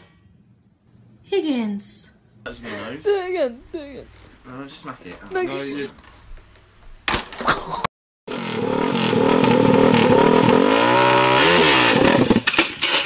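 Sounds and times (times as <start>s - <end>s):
motorcycle engine revving: 8.3s - 13.0s.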